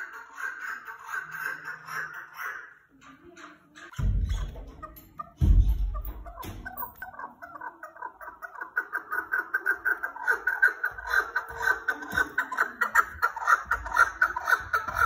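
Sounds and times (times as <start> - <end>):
partridge chuck calls: 0.0 - 15.0.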